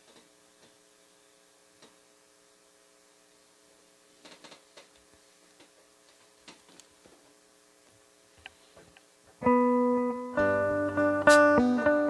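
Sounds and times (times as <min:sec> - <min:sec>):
faint electrical hum: 0:00.0 - 0:12.0
electric guitar handling clicks: 0:11.2 - 0:12.0.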